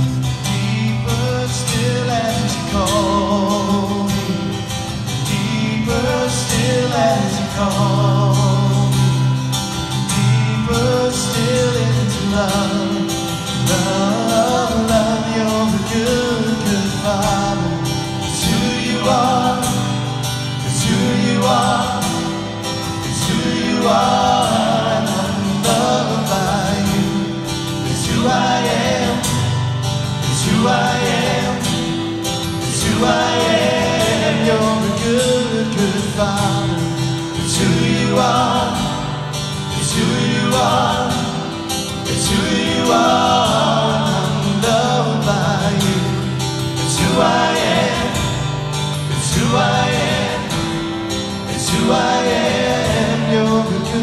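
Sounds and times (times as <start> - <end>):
acoustic guitars: 0.0 - 54.0
men singing together: 0.0 - 54.0.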